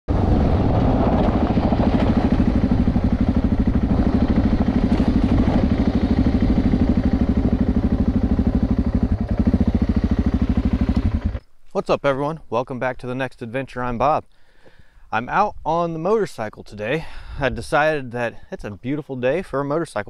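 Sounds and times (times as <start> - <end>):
motorcycle engine thumping: 0.6 - 11.4.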